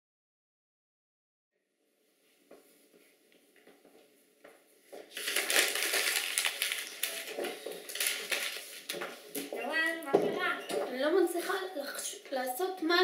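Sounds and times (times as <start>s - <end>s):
paper crumpling: 5.0s - 9.5s.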